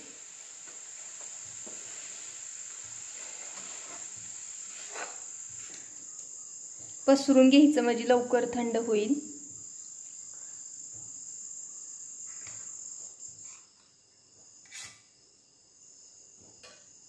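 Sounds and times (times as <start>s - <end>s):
metal spatula scraping: 14.7s - 15.0s.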